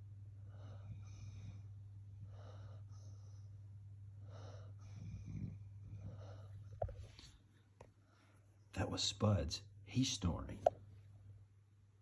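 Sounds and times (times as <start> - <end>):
steady low hum: 0.0 - 12.0
dog snoring: 0.5 - 3.4, 4.2 - 6.7.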